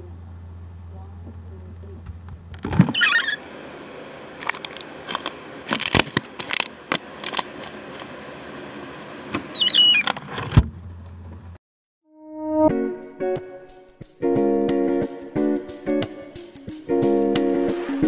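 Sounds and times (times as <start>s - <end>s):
squeak: 2.8s - 3.4s, 9.5s - 10.2s
snack packets rustling: 4.4s - 7.7s.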